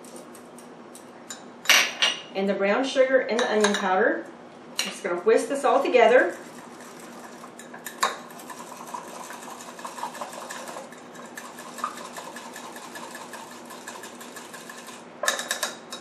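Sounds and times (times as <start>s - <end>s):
metal whisk rattling against glass: 6.3s - 16.0s.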